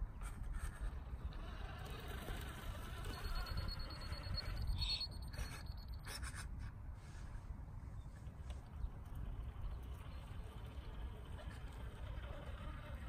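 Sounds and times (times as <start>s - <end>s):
electric motor whine: 1.3s - 5.0s, 9.2s - 13.0s.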